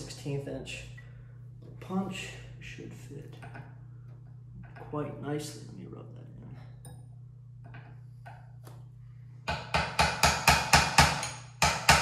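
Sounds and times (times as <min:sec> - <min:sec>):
hammer striking metal punch: 0:09.5 - 0:12.0.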